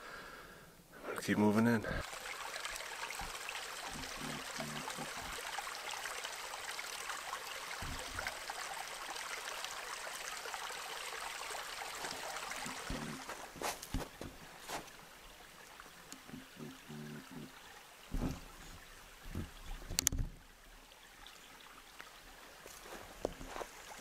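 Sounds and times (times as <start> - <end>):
creek water flowing: 1.1 - 24.0
soft low thumps: 18.1 - 20.4.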